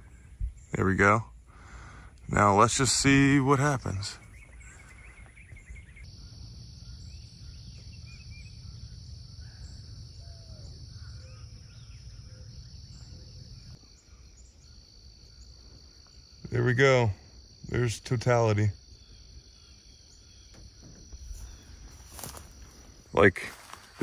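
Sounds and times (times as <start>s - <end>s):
high insect chorus: 0.0s - 24.0s.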